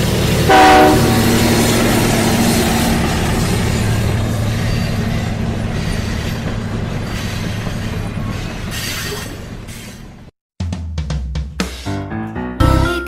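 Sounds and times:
train running on rails: 0.0 - 10.3.

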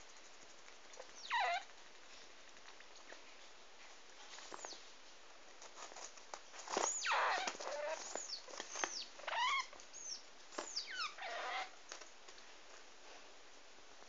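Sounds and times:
degu squealing: 1.2 - 1.7.

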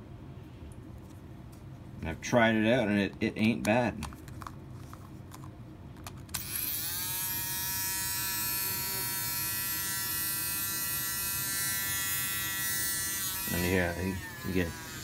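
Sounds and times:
electric shaver buzzing: 6.4 - 15.0.

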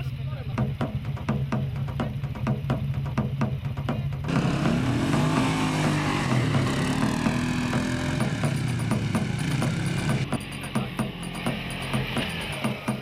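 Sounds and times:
quad bike engine accelerating: 4.3 - 13.0.

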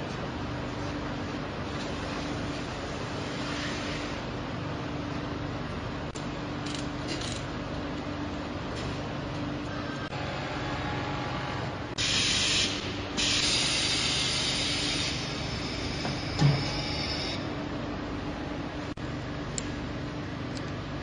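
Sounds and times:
machine hum: 0.0 - 21.0
compressed air hissing: 12.0 - 15.3.

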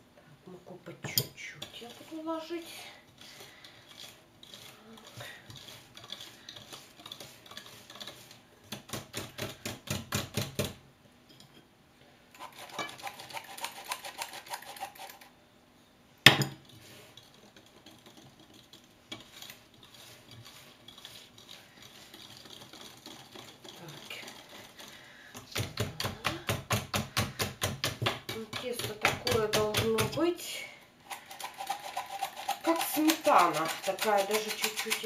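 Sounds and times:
metal flour sifter rattling: 16.8 - 24.9, 31.2 - 35.0
whisk clinking against glass bowl: 17.1 - 24.8, 31.8 - 35.0.

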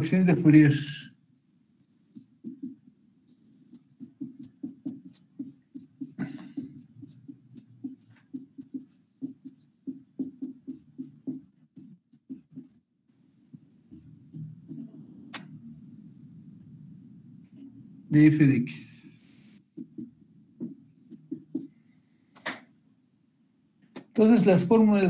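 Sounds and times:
marker scratching on whiteboard: 1.8 - 15.6, 18.9 - 22.7.

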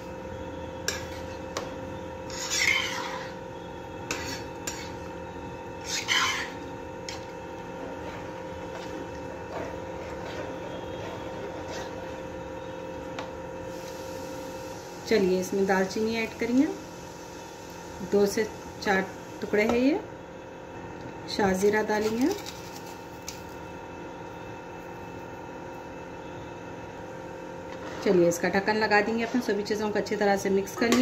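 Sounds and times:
steady hum: 0.0 - 31.0
utensil scraping pot: 0.9 - 1.5, 2.2 - 3.4, 4.1 - 5.1, 5.8 - 7.3, 8.0 - 12.2.

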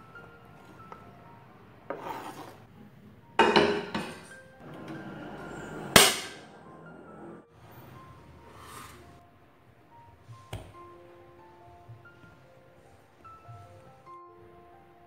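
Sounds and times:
soft background music: 0.0 - 15.0
kitchen clatter: 3.4 - 6.6
gas burner lighting rush: 4.6 - 7.4.

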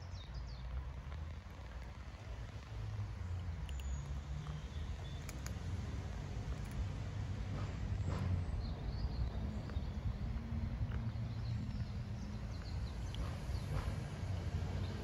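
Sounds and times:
cats crunching dry kibble: 1.2 - 7.0.

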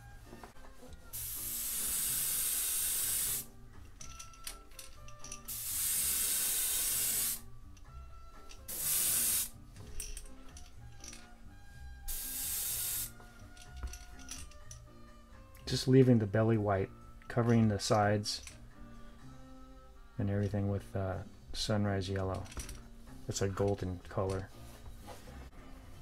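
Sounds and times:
airbrush spraying hiss: 1.1 - 3.5, 5.5 - 7.5, 8.7 - 9.6, 12.1 - 13.2.

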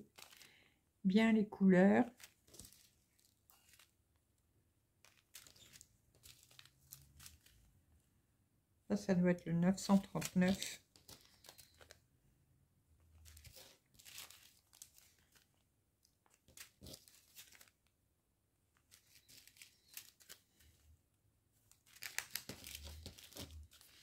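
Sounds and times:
plastic sachets crinkling: 0.0 - 0.7, 2.0 - 4.0, 5.0 - 7.7, 9.7 - 12.0, 13.1 - 17.9, 18.8 - 20.8, 21.7 - 24.0.

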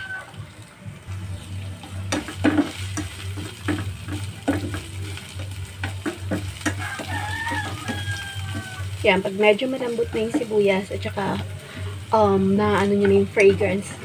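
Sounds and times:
onion sizzling in oil: 0.0 - 14.0
utensil scraping and tapping pan: 2.1 - 9.0.

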